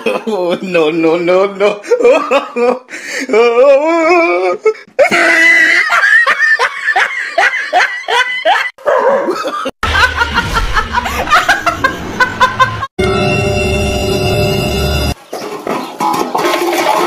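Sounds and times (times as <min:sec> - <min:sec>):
people laughing: 0:04.2 - 0:13.0
low hum: 0:09.8 - 0:15.2.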